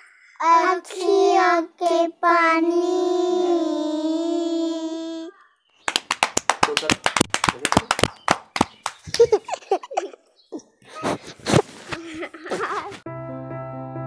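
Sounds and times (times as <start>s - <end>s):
girls clapping quickly: 5.9s - 9.4s
girls giggling and laughing: 9.0s - 13.0s
keyboard music with held chords: 13.1s - 14.0s.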